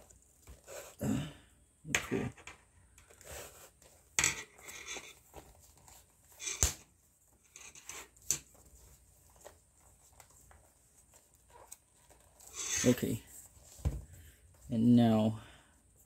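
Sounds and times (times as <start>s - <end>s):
leather rustling and scraping: 3.0s - 14.8s.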